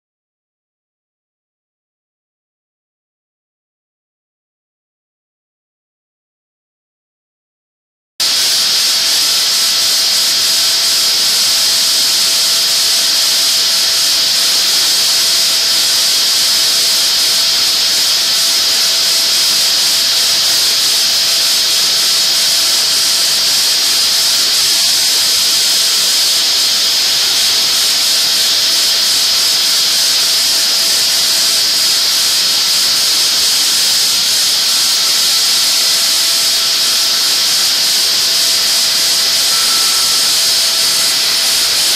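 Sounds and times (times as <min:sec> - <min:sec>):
air blow hissing: 0:08.2 - 0:41.9
faint steady whine: 0:08.2 - 0:41.9.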